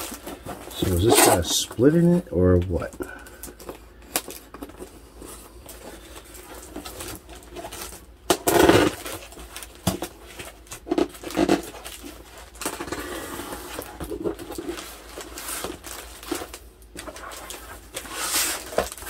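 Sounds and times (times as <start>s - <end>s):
box scraping: 0.0s - 1.7s
handling cardboard box: 8.7s - 19.0s.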